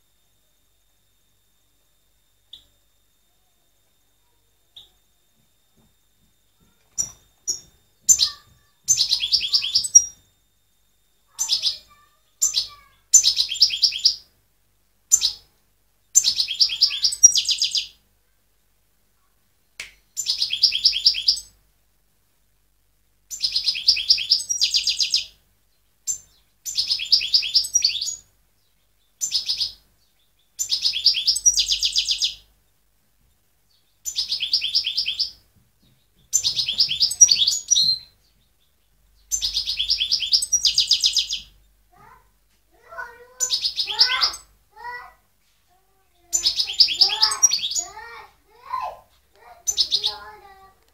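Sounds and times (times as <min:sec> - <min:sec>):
goldfinch singing: 0:06.6 - 0:10.2, 0:11.3 - 0:14.3, 0:15.1 - 0:15.5, 0:16.1 - 0:18.0, 0:20.2 - 0:21.5, 0:23.3 - 0:32.5, 0:33.7 - 0:42.2, 0:42.8 - 0:45.0, 0:46.2 - 0:48.8, 0:49.4 - 0:50.8.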